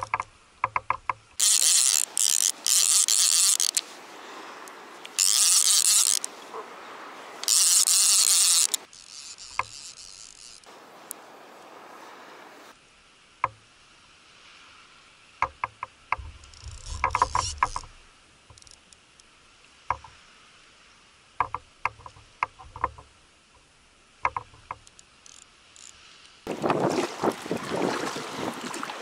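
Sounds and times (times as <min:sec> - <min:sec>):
fishing gear clicks and knocks: 0:00.0 - 0:03.9, 0:04.6 - 0:06.4, 0:07.4 - 0:11.2, 0:15.4 - 0:19.0
water noise: 0:00.0 - 0:29.0
wind: 0:00.0 - 0:29.0.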